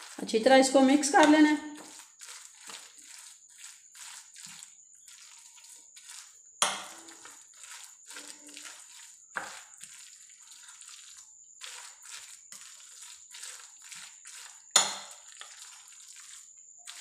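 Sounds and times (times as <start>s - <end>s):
spoon stirring wet batter: 0.0s - 17.0s
spoon clinking against glass: 6.6s - 7.1s, 14.8s - 15.2s.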